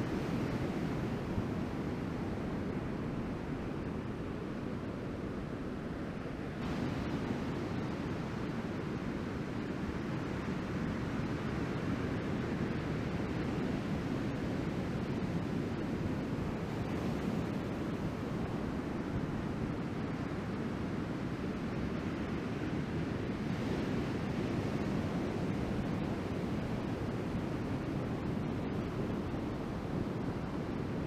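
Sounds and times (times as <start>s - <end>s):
wind on microphone: 0.0s - 31.0s.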